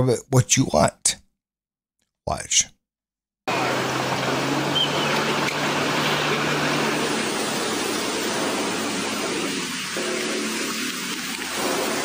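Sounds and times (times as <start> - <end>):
rain: 3.5 - 12.0
river water rushing: 3.5 - 12.0.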